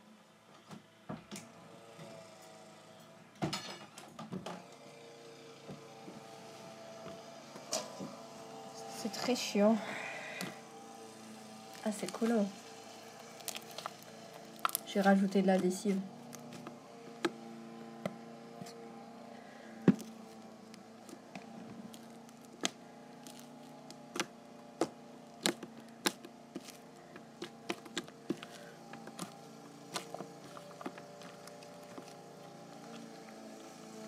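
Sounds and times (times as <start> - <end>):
lawnmower engine hum: 4.8 - 34.0
slime clicking and snapping: 22.4 - 26.8.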